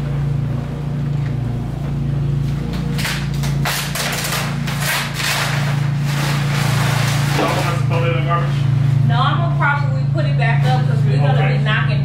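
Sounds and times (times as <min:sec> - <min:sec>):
steady low hum: 0:00.0 - 0:12.0
plastic sheeting rustling: 0:02.9 - 0:08.1.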